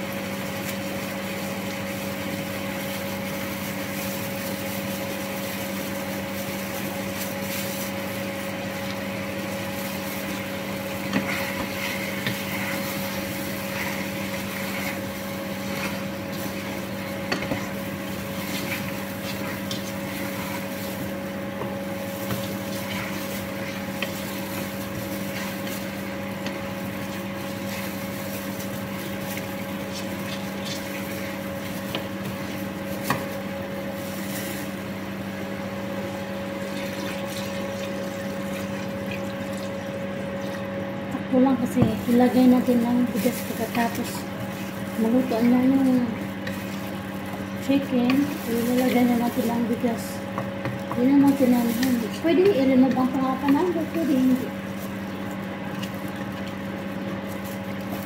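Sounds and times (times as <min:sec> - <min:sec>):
appliance hum: 0:00.0 - 0:58.0
wooden spoon stirring in pot: 0:00.4 - 0:40.8, 0:41.4 - 0:58.0.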